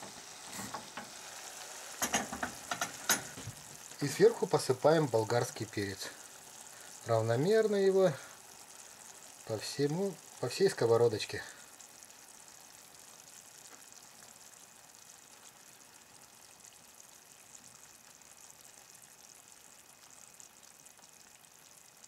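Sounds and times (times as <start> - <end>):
frying pan sizzling: 0.0 - 22.0.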